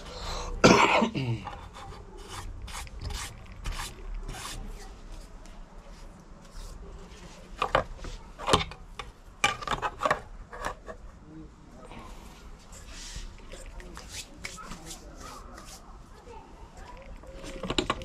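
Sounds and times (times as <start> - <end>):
hands rubbing and scraping workbench: 1.6 - 8.4, 12.6 - 16.3
plastic plate being handled: 6.0 - 11.2, 16.8 - 18.0.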